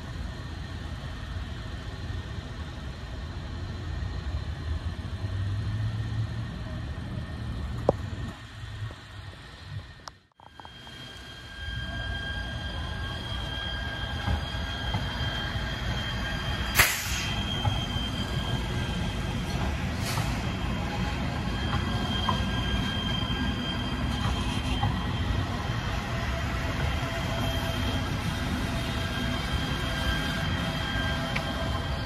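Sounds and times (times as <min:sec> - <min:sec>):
light-rail train rumbling past: 0:00.0 - 0:32.0
high squeal: 0:10.4 - 0:32.0.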